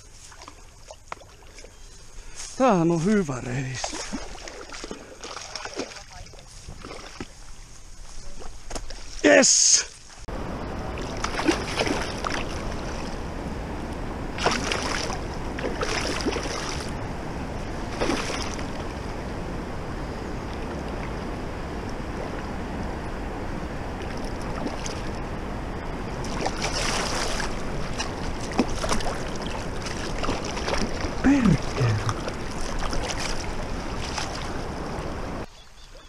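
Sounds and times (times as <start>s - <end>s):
fish splashing: 3.6s - 7.6s, 10.9s - 13.2s, 14.3s - 17.0s, 17.7s - 18.9s, 24.0s - 25.2s, 26.2s - 35.1s
river rapids rushing: 23.9s - 35.4s.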